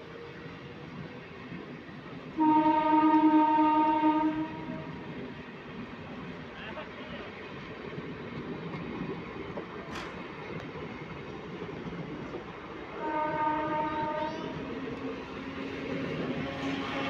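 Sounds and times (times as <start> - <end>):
train wheels rumbling on track: 0.0 - 17.0
train horn: 2.3 - 5.1, 12.9 - 14.7, 16.2 - 17.0.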